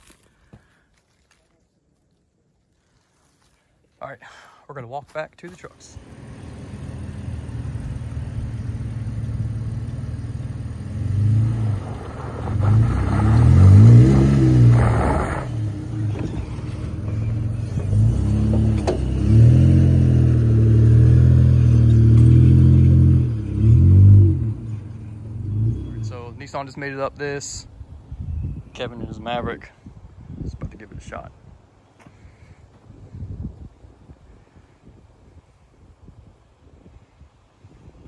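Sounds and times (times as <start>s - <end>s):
pickup engine revving: 6.0s - 26.4s.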